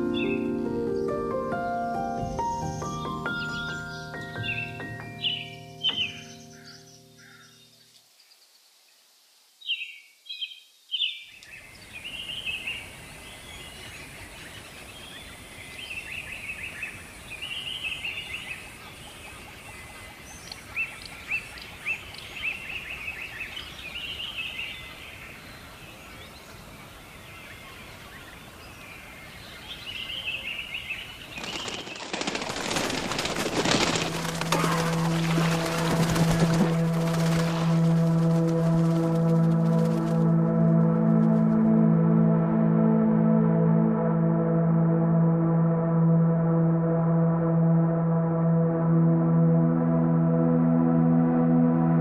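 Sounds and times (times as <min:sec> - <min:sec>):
small birds chirping: 0:02.2 - 0:36.6
outdoor noisy hiss: 0:07.8 - 0:19.5.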